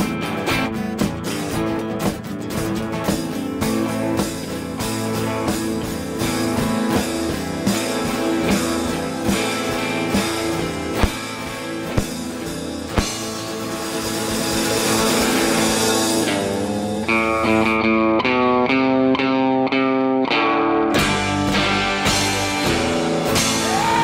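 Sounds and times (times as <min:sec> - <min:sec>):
drum kit beat: 0:00.0 - 0:18.8, 0:21.0 - 0:24.0
electric guitar: 0:00.0 - 0:24.0
sharp drum hits: 0:07.7 - 0:15.4.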